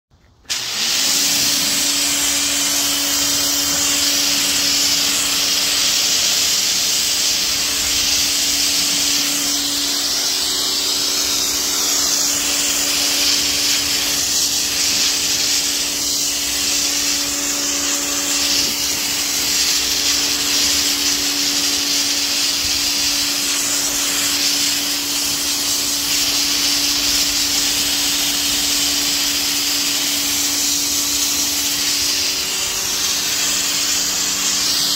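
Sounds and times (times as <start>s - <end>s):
pressure washer motor hum: 0.2s - 34.9s
hiss of water spray: 0.4s - 34.9s.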